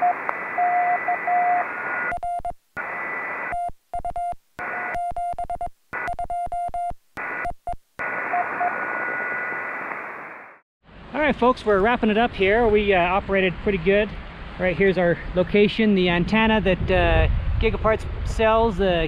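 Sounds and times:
radio receiver hiss: 0.0s - 2.1s, 2.8s - 3.5s, 7.2s - 10.6s
morse code beep tone: 0.0s - 2.6s, 3.5s - 9.5s.

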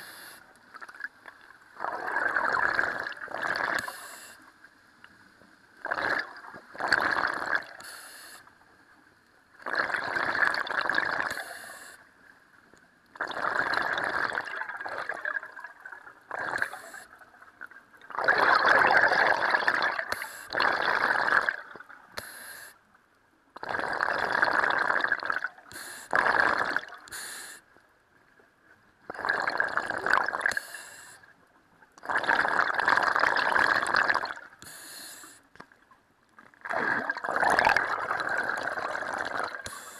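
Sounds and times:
regulator inhale hiss: 0.0s - 0.5s, 3.8s - 4.5s, 7.8s - 8.5s, 11.3s - 12.1s, 16.6s - 17.1s, 20.1s - 20.6s, 22.2s - 22.8s, 25.7s - 26.2s, 27.1s - 27.6s, 30.5s - 31.3s, 34.6s - 35.5s, 39.6s - 39.9s
exhaled bubbles gurgling underwater: 0.7s - 4.4s, 5.8s - 7.8s, 9.6s - 11.9s, 13.1s - 22.2s, 23.6s - 27.1s, 29.1s - 31.1s, 32.0s - 35.9s, 36.5s - 39.9s.

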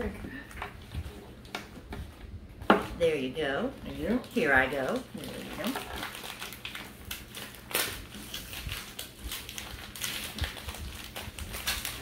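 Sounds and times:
wrapping paper crinkling and tearing: 3.9s - 12.0s.

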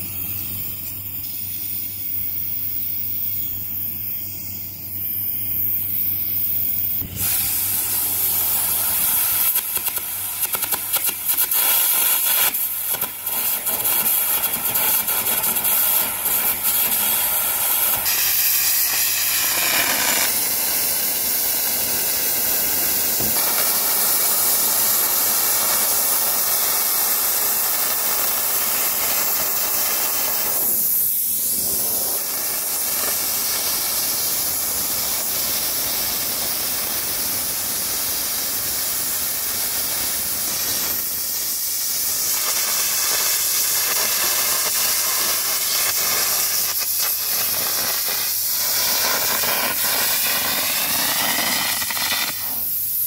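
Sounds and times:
carbon arc gouging hissing crackle: 0.0s - 53.0s.

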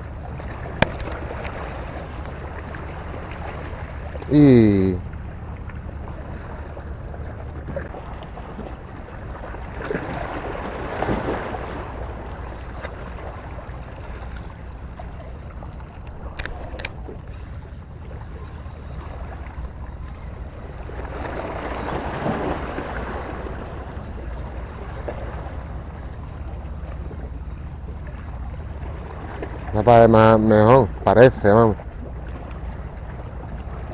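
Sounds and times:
small waves washing on shore: 0.0s - 33.9s
wind rumbling on microphone: 5.3s - 29.8s.

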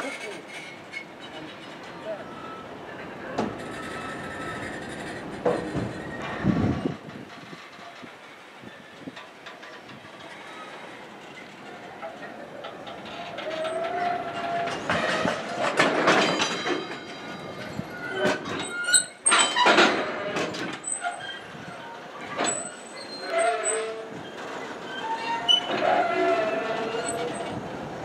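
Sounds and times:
train wheels squealing: 0.0s - 2.7s, 3.6s - 7.0s, 16.8s - 19.6s, 20.8s - 27.6s
train wheels clacking over rail joints: 3.3s - 28.0s.

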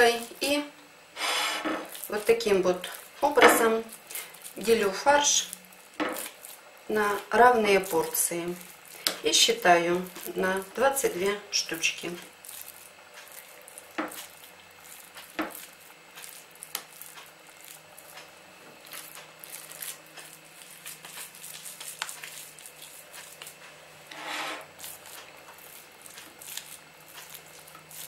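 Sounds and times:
wet squishing of raw mince: 11.8s - 18.2s, 18.8s - 23.7s, 24.6s - 28.0s.

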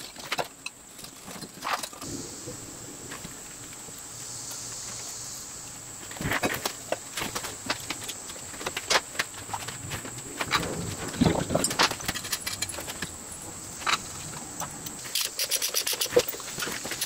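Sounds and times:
metal parts clinking: 10.5s - 17.0s.

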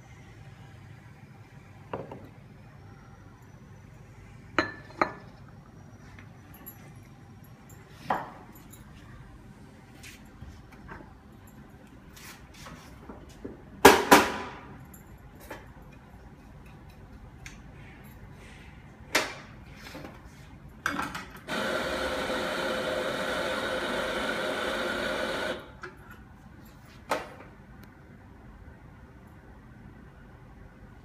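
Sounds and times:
coffee grinder motor running: 21.5s - 25.7s.

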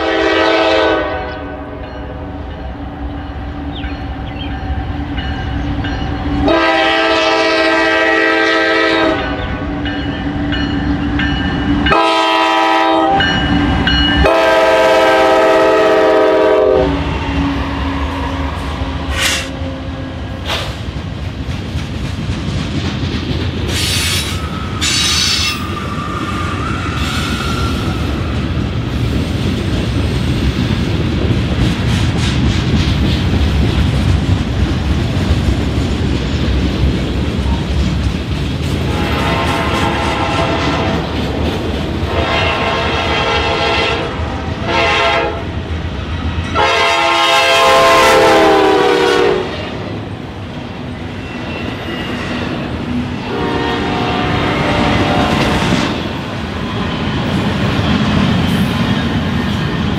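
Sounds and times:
locomotive air horn blasts: 0.0s - 1.8s, 6.4s - 9.4s, 11.9s - 13.4s, 14.2s - 17.2s, 38.9s - 41.0s, 42.1s - 45.5s, 46.5s - 49.6s, 53.3s - 55.2s
passing train rumble: 0.0s - 59.9s
wheel squeals and clanks: 51.1s - 52.6s.

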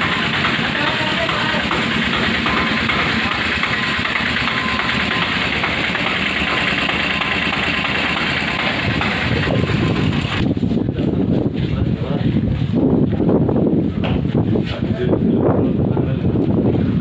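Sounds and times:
diesel engine idling: 0.0s - 11.2s.

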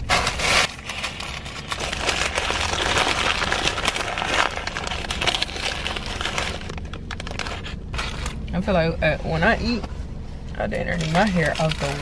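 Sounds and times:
food packaging crinkling: 0.0s - 8.4s, 10.9s - 12.0s.

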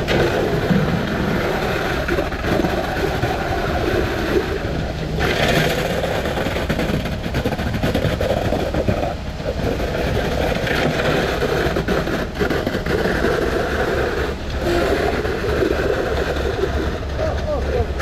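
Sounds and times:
concrete pump running: 0.0s - 18.0s
concrete trucks engines: 0.0s - 18.0s.

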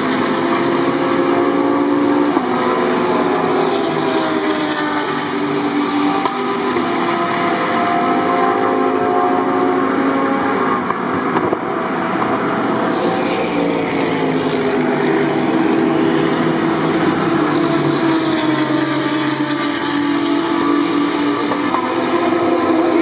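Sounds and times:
race car engines passing: 0.0s - 23.0s.

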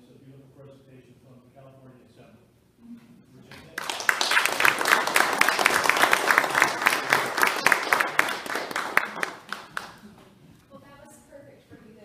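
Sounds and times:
small audience applauding: 3.5s - 10.2s.

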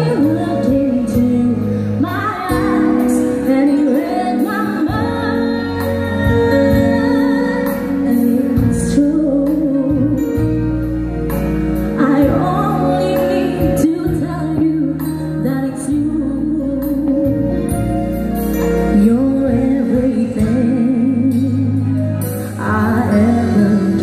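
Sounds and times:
women singing: 0.0s - 10.2s, 22.6s - 24.0s
live band playing: 0.0s - 24.0s.

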